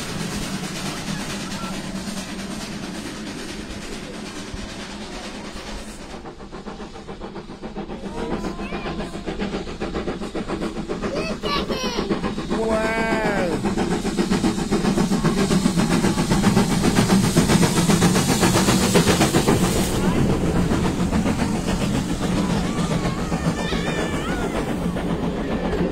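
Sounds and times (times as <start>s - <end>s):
steam locomotive running: 0.0s - 25.9s
child calling out: 11.1s - 12.2s, 22.7s - 24.8s.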